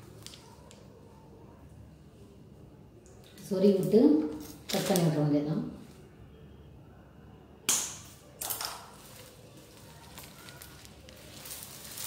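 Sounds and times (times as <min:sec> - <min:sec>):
plastic strips snapping: 0:07.7 - 0:12.0
plastic strips scraping: 0:08.9 - 0:12.0.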